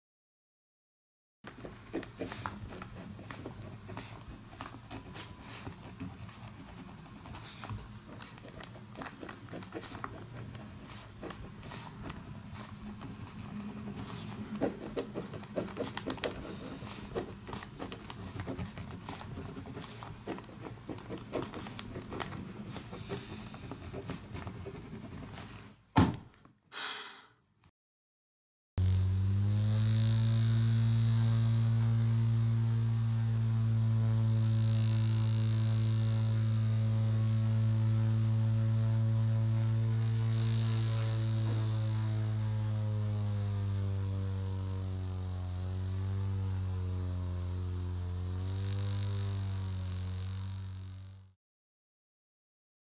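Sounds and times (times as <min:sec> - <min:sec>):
pen scratching on paper: 0:01.5 - 0:25.7.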